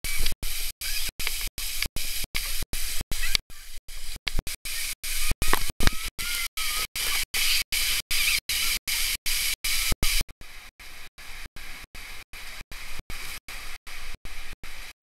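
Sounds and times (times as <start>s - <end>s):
fountain jets spraying water: 0.0s - 10.2s.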